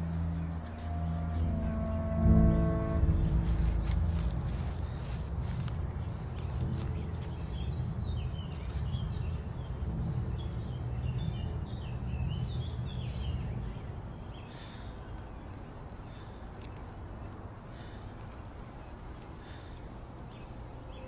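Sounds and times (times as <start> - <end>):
low rumble: 0.0 - 16.3
birds chirping: 0.0 - 21.0.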